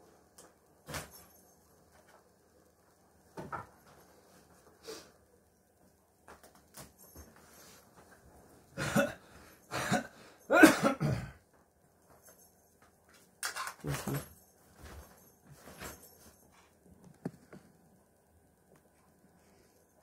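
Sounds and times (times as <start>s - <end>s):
person coughing: 8.8s - 11.4s.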